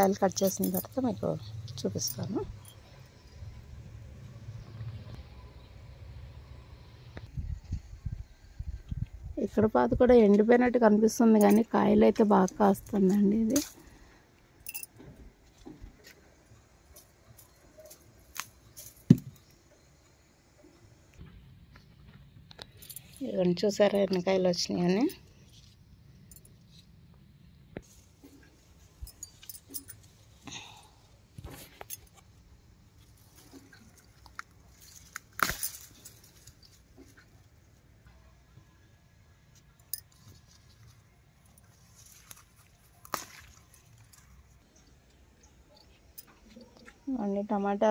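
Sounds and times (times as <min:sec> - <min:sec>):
dry leaves rustling: 0:33.0 - 0:37.1, 0:40.2 - 0:44.6.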